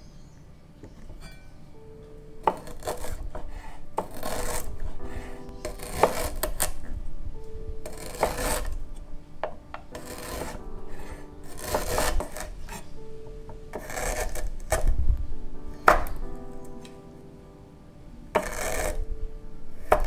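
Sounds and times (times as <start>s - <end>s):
knife slicing ginger: 2.5s - 3.2s, 4.0s - 4.7s, 5.7s - 6.7s, 7.9s - 8.7s, 10.0s - 10.6s, 11.5s - 12.8s.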